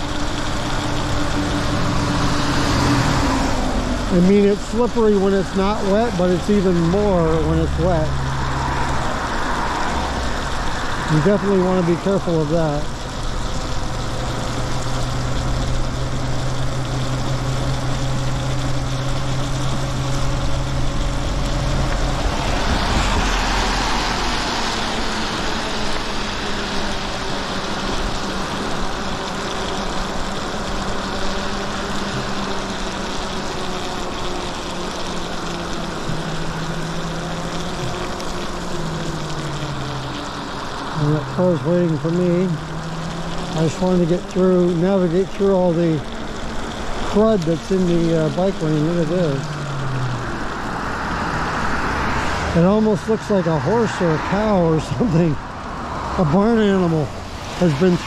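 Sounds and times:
low electric motor hum: 0:00.0 - 0:58.0
tyres hissing on wet pavement: 0:00.0 - 0:58.0
wind: 0:00.0 - 0:58.0
loud rush: 0:48.4 - 0:58.0.

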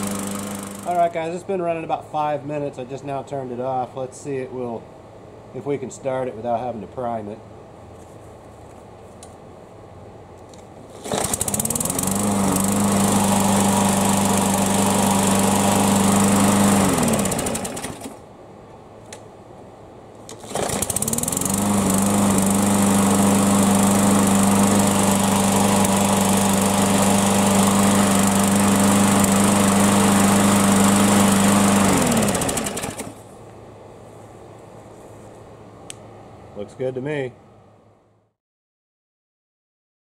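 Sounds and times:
lawn mower engine running: 0:00.0 - 0:01.2, 0:10.9 - 0:18.2, 0:20.3 - 0:33.3.

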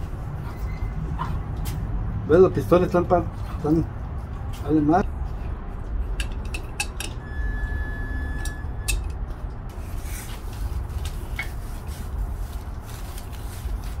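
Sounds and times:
metallic wrench clinks and taps: 0:06.2 - 0:07.2.

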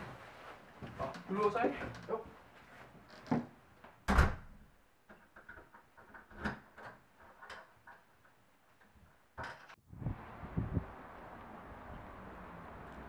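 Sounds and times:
door shutting thud: 0:04.1 - 0:04.5.

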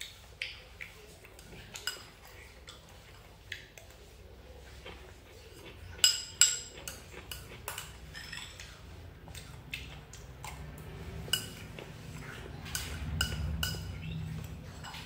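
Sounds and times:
spoon clinking on porcelain bowl: 0:05.6 - 0:08.7, 0:11.2 - 0:11.7, 0:12.6 - 0:15.0.

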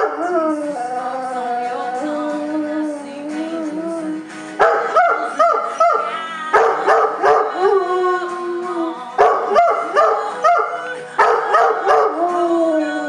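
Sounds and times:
dog howling: 0:00.0 - 0:13.0
recorded music: 0:00.0 - 0:13.0.

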